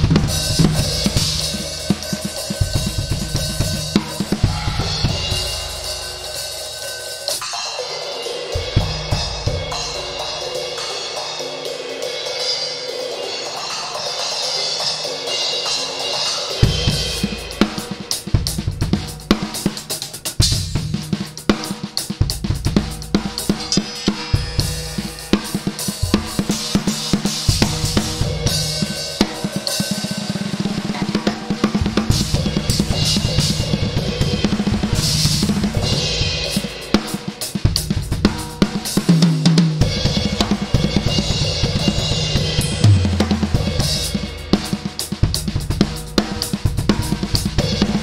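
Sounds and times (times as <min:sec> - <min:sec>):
cymbals ringing: 0:00.0 - 0:18.0
drum kit solo: 0:00.0 - 0:48.0.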